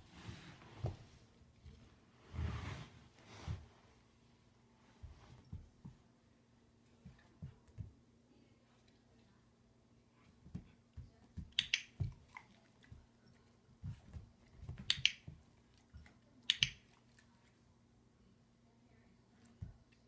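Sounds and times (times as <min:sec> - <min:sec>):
dog paws thumping on rubber: 0:04.8 - 0:06.1, 0:07.0 - 0:08.0, 0:10.3 - 0:13.1, 0:13.8 - 0:16.1.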